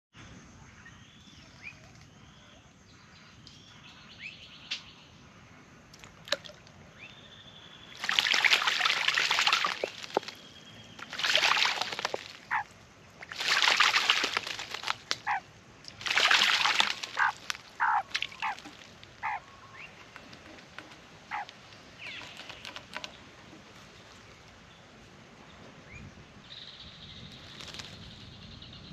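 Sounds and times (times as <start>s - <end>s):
bird splashing in water: 6.0s - 6.8s, 7.9s - 23.8s
faint bird calls: 15.2s - 15.5s, 16.8s - 24.9s.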